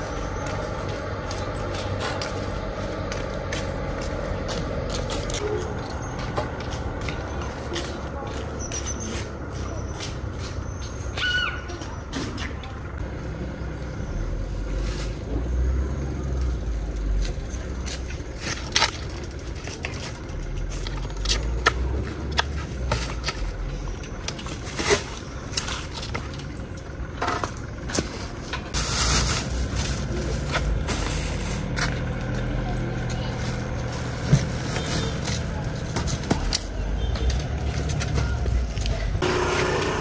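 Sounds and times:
footsteps: 0.0s - 11.1s
traffic rumble: 0.0s - 40.0s
bamboo basket being handled: 27.9s - 39.3s
plastic bag rustling: 28.8s - 31.8s.

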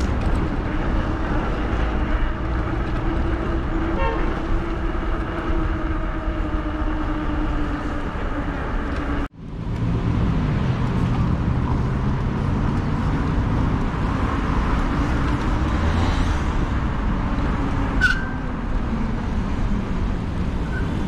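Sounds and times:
street traffic: 0.0s - 21.0s
brief horn toot: 3.9s - 4.5s.

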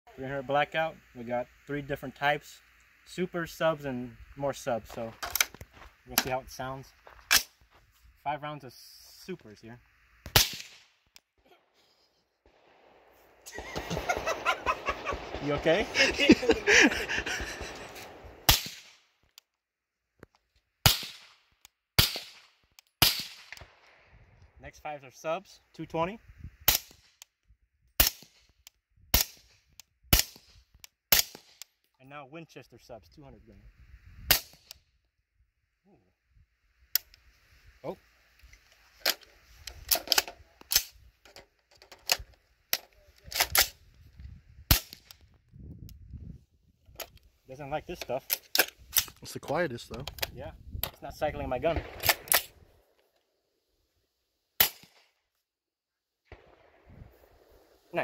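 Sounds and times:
suppressed rifle shots: 10.2s - 11.0s, 12.4s - 19.0s, 20.8s - 21.4s, 22.0s - 24.0s, 51.6s - 52.9s, 54.6s - 55.1s, 56.3s - 57.8s
deep gunshot crack: 10.3s - 10.8s, 12.4s - 19.0s, 51.6s - 52.7s, 56.3s - 57.7s
rifle metallic clicks and clacks: 39.0s - 43.8s, 47.9s - 49.3s, 51.8s - 53.1s.

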